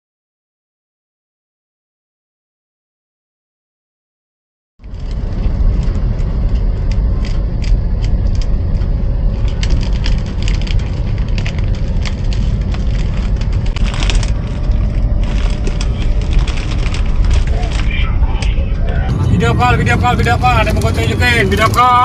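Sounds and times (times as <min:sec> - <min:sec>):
car engine and road rumble: 0:04.8 - 0:22.0.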